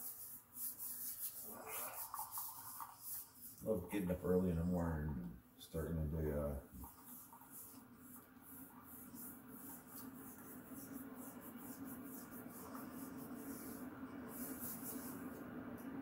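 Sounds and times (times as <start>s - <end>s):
coffee maker humming: 10.0s - 16.0s.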